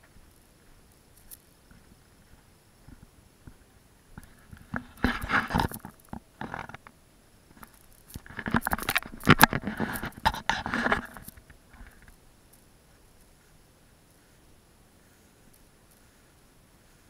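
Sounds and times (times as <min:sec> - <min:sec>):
stems crackling: 0:07.5 - 0:13.4.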